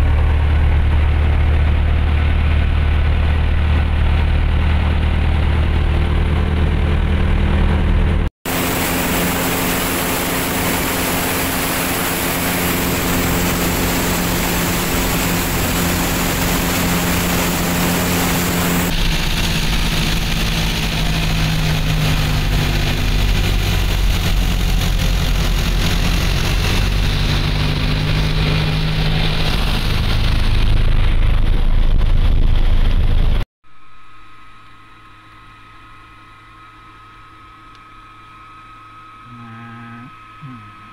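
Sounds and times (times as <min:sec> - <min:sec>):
aircraft engine and propeller: 0:00.0 - 0:39.3
faint steady hum: 0:33.7 - 0:40.9.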